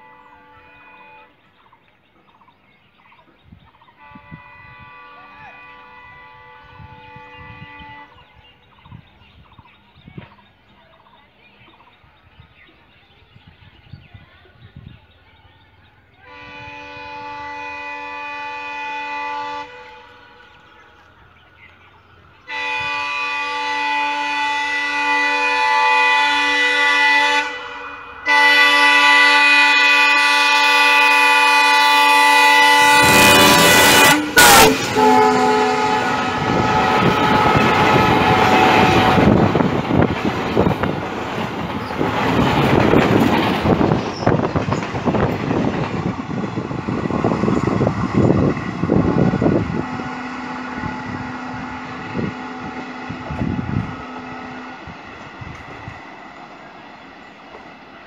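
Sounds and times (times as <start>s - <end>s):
locomotive air horn blasts: 0.0s - 1.4s, 4.0s - 8.4s, 16.2s - 20.5s, 22.4s - 40.9s, 46.3s - 56.0s
train coaches rumbling and clattering: 1.4s - 58.0s.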